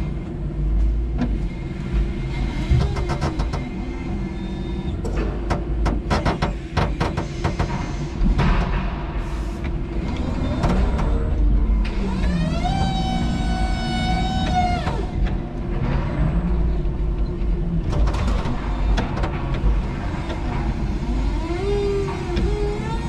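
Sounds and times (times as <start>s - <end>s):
knocks and clatters: 2.0s - 3.9s, 5.0s - 12.0s, 13.7s - 23.0s.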